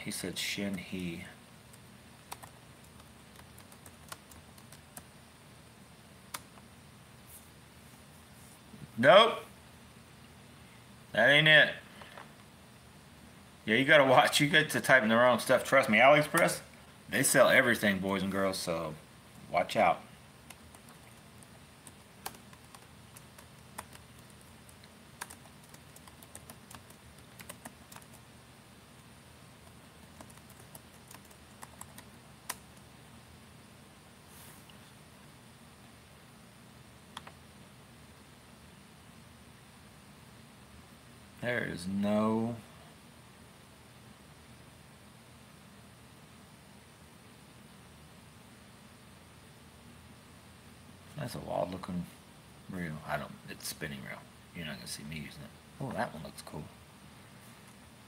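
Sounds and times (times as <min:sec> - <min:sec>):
keyboard keystrokes: 0:20.5 - 0:28.2, 0:29.6 - 0:32.6.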